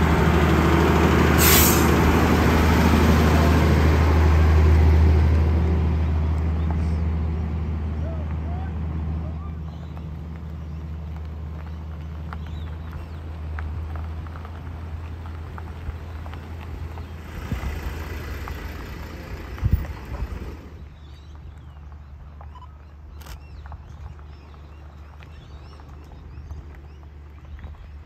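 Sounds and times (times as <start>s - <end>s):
tyres crunching on gravel: 7.9s - 28.0s
footsteps on gravel: 9.6s - 17.6s, 21.1s - 28.0s.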